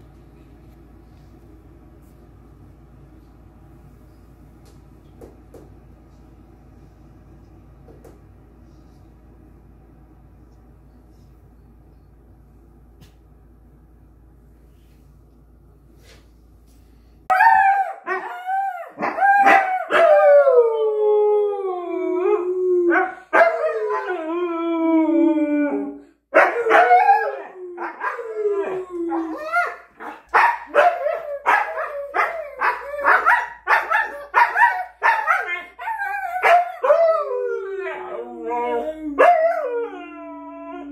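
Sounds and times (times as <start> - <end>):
dog howling: 17.3 - 29.8, 30.7 - 40.9
dog yelping: 29.1 - 36.6.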